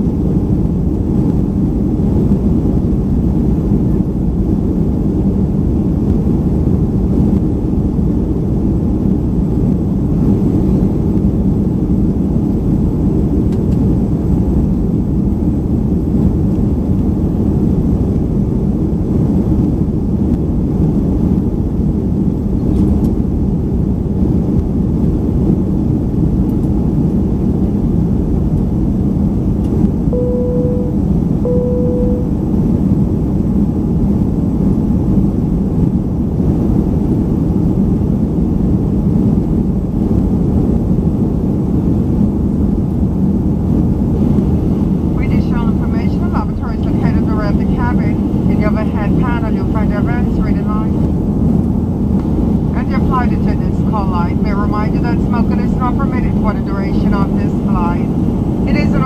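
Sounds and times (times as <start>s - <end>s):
airplane cabin engine roar: 0.0s - 59.0s.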